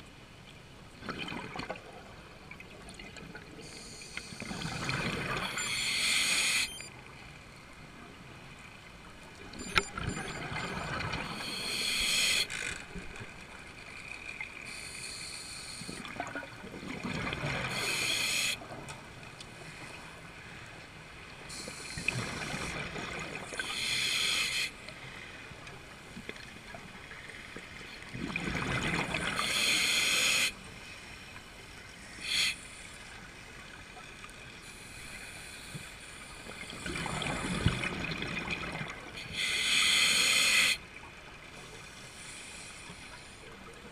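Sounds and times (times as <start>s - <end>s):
regulator inhale hiss: 3.6s - 4.5s, 5.6s - 6.7s, 11.4s - 12.6s, 14.7s - 16.0s, 17.7s - 18.6s, 21.5s - 22.3s, 23.6s - 24.8s, 29.4s - 31.1s, 32.0s - 33.0s, 34.6s - 36.8s, 39.2s - 40.8s, 42.0s - 43.4s
exhaled air bubbling underwater: 28.0s - 30.3s, 36.5s - 40.6s.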